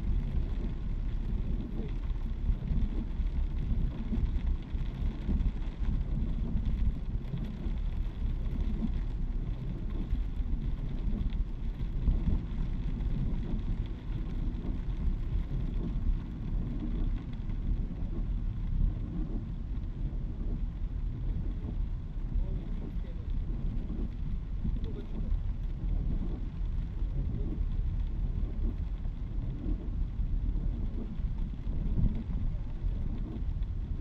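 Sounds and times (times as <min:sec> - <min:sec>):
car cabin rumble: 0:00.0 - 0:34.0
heavy rain: 0:00.0 - 0:34.0
tyre noise on wet road: 0:00.0 - 0:34.0.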